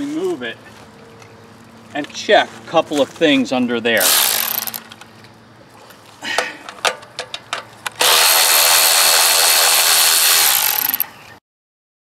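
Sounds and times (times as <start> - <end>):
cordless ratchet motor whirring: 4.0 - 4.9, 8.0 - 11.1
socket clicking onto ratchet: 4.0 - 5.0, 7.2 - 11.0.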